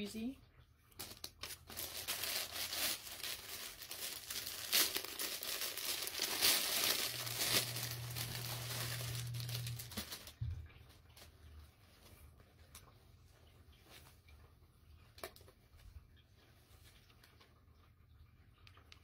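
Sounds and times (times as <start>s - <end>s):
low steady hum: 0.0s - 19.0s
plastic packaging crinkling: 0.9s - 11.2s
plastic tearing: 1.0s - 10.5s.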